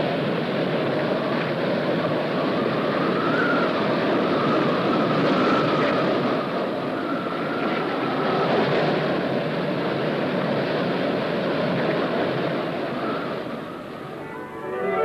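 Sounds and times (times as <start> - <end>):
heavy sea: 0.0 - 15.0
faint wavering whistle: 12.8 - 15.0.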